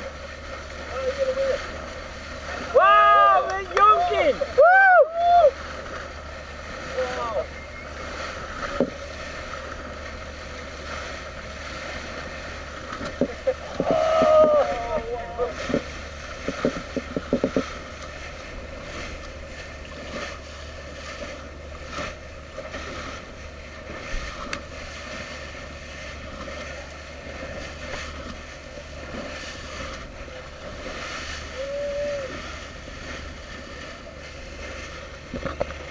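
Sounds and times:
boat engine hum: 0.0s - 35.9s
water rushing past bow: 0.0s - 35.9s
whistle-like tone: 7.5s - 8.0s.

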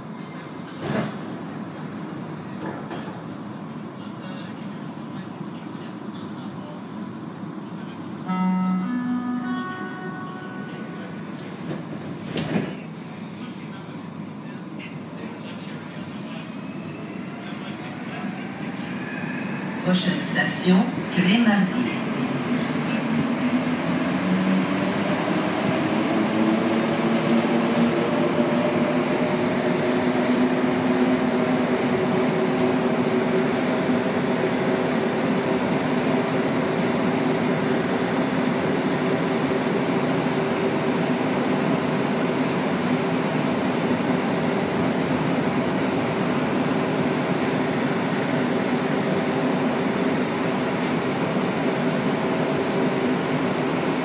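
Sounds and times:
train running noise in tunnel: 0.0s - 54.0s
metro train motor tones rising: 8.2s - 12.7s, 16.2s - 54.0s.

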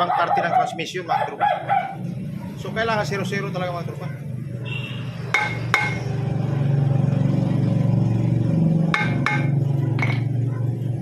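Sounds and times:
hammer tapping metal: 5.3s - 6.1s, 8.9s - 10.3s.

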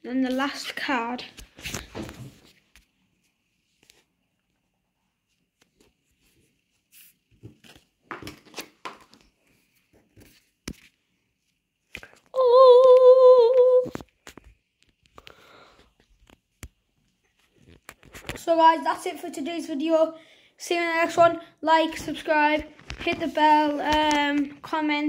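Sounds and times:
cards being handled: 5.5s - 12.3s
person humming: 12.4s - 13.9s.

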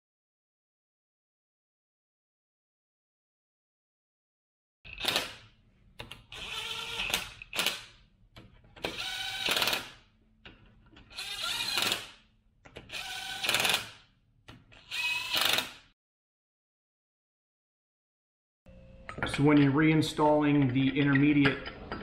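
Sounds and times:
cordless driver spinning bolts: 14.8s - 15.8s.

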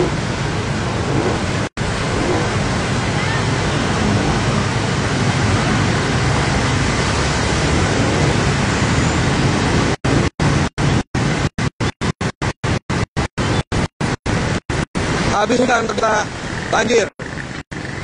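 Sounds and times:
water splashing: 0.0s - 11.5s
vehicle engines: 0.0s - 11.7s, 12.6s - 18.0s.

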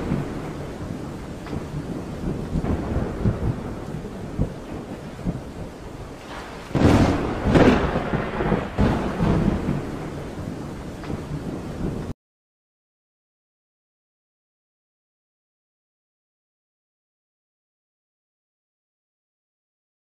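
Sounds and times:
loud thunderclap: 0.0s - 12.2s
rain hissing: 0.0s - 12.2s
thunder rumbling: 0.0s - 12.2s.

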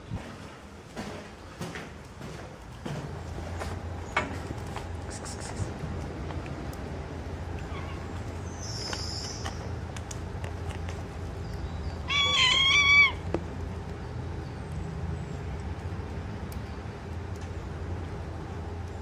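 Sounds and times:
cat meowing: 12.1s - 13.2s.

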